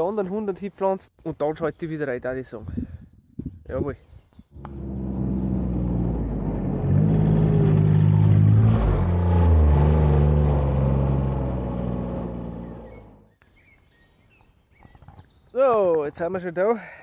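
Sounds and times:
utility vehicle passing by: 0:04.6 - 0:13.3.

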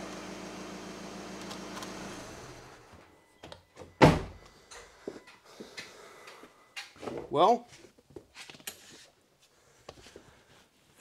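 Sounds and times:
car door closing thud: 0:04.0 - 0:04.4.

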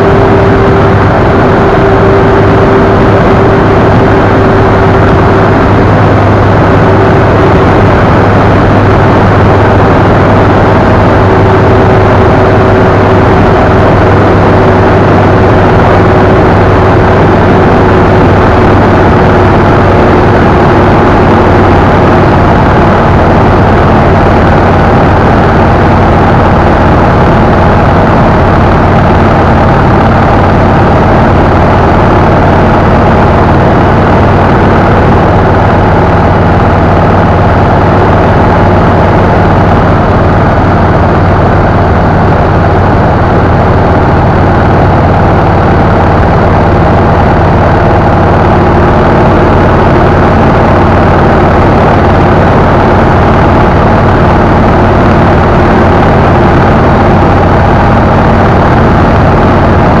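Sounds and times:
motorcycle engine droning: 0:00.0 - 1:00.0
wind rushing on camera: 0:00.0 - 1:00.0.

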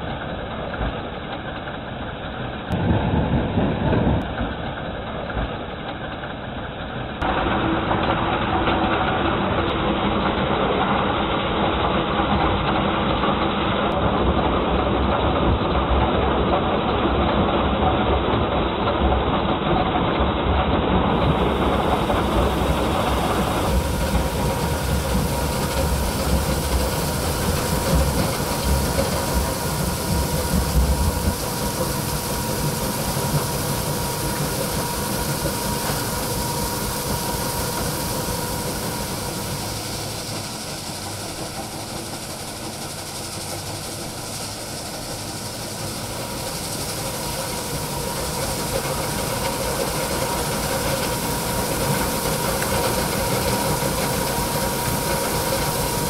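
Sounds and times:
crushers and conveyors rumbling: 0:20.9 - 0:56.0
constant thin whine: 0:21.0 - 0:56.0.

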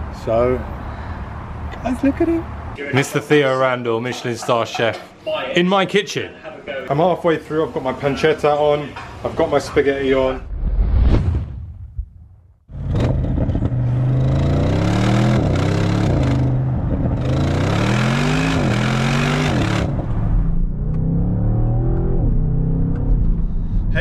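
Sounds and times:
road and wind noise: 0:00.0 - 0:02.8, 0:11.8 - 0:24.0
car engine accelerating hard: 0:12.7 - 0:23.5.

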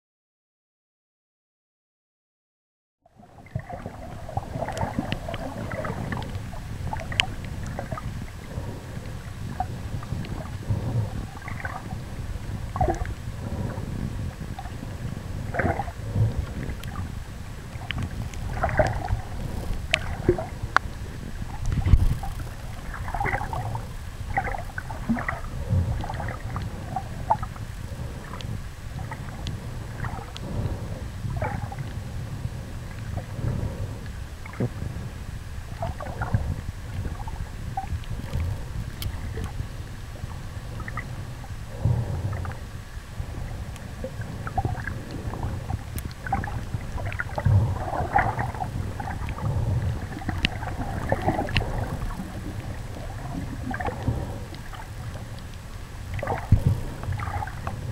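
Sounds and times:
muffled underwater sloshing: 0:03.1 - 0:57.9
faint clicks: 0:06.1 - 0:08.0, 0:17.8 - 0:20.9, 0:50.3 - 0:52.2.

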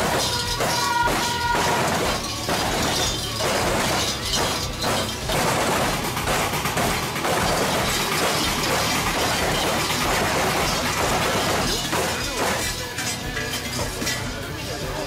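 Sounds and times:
faint music: 0:00.0 - 0:15.0
large bells jangling: 0:00.0 - 0:15.0.

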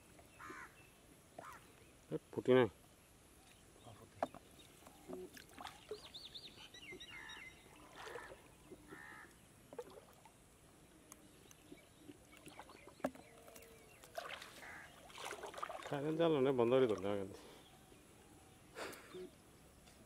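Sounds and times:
bird calling: 0:00.3 - 0:01.9, 0:03.4 - 0:09.4, 0:11.2 - 0:15.2.

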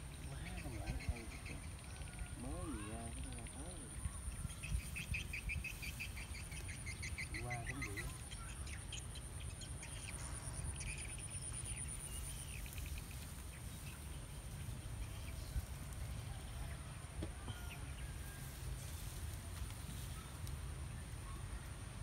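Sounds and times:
bird chirps: 0:00.0 - 0:15.7
wind rumbling on microphone: 0:03.1 - 0:06.6.

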